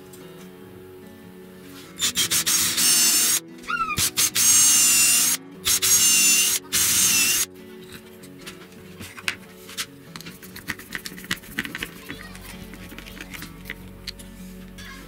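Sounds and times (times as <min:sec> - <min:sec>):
guitar music: 0:00.0 - 0:15.0
faint squeak: 0:03.6 - 0:04.0
wood-on-wood scraping: 0:08.0 - 0:15.0.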